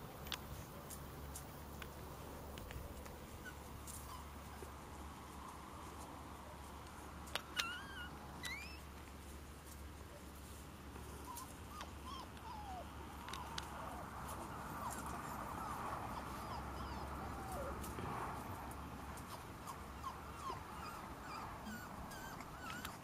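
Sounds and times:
puppies whimpering: 0:07.5 - 0:08.8, 0:11.2 - 0:18.6, 0:19.2 - 0:23.0
puppy sharp cries: 0:07.5 - 0:08.8, 0:11.3 - 0:14.0, 0:14.6 - 0:17.8, 0:19.6 - 0:23.0.

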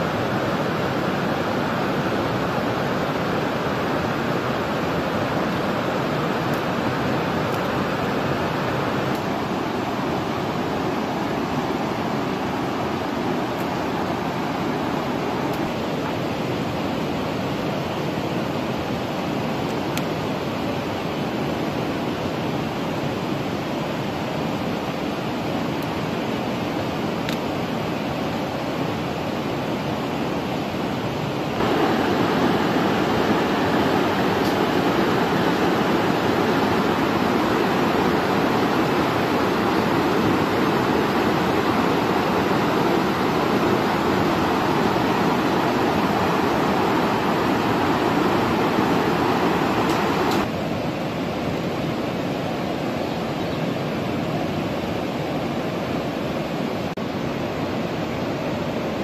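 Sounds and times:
river water rushing over rocks: 0:00.0 - 0:59.0.

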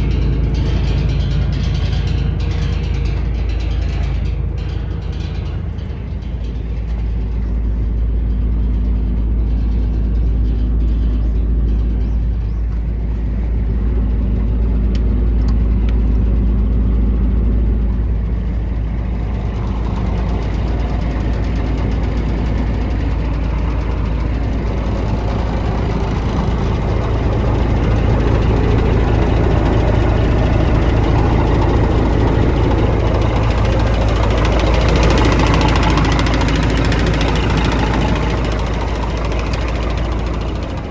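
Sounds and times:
truck diesel engine idling: 0:00.0 - 0:40.9.

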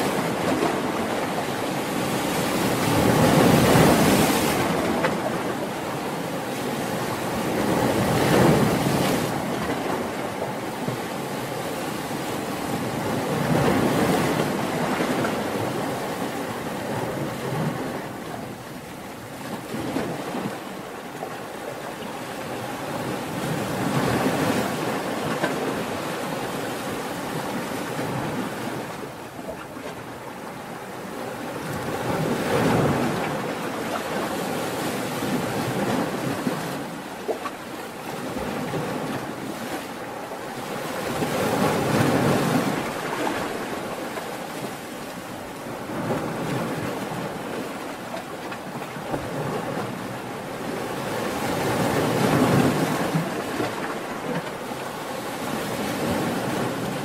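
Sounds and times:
ocean waves crashing: 0:00.0 - 0:57.0.

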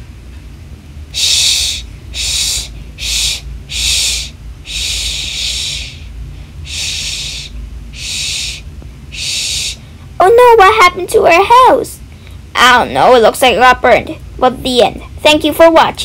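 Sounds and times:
breathy hissing bursts: 0:01.1 - 0:10.0.

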